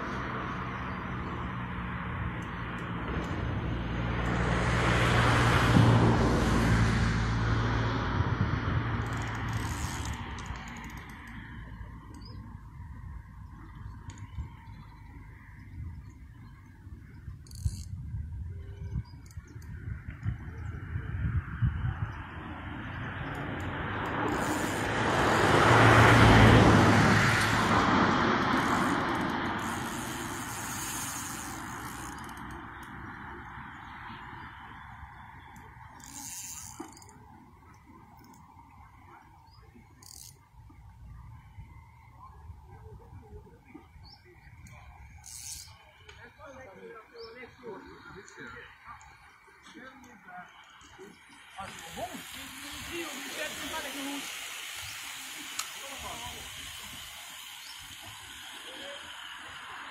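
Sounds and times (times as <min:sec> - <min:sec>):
vehicle passing by: 0:00.0 - 0:12.1, 0:20.3 - 0:37.1.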